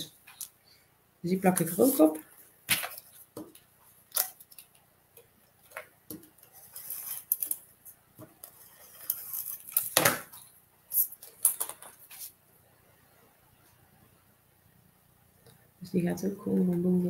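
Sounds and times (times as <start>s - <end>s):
paper strips rustling and tapping: 1.4s - 12.3s.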